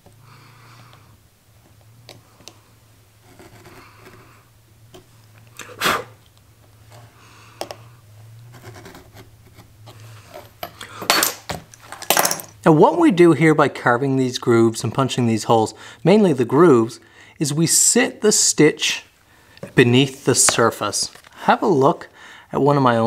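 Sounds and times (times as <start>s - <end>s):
low steady hum: 0.0s - 22.5s
stitch groover scraping leather: 3.2s - 5.1s, 8.2s - 10.6s.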